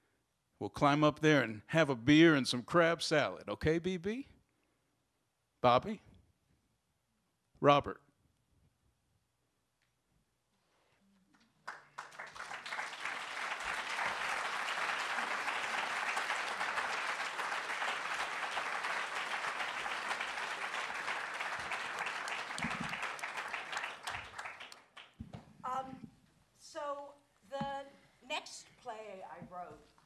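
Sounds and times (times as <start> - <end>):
audience applauding: 11.6 - 25.2.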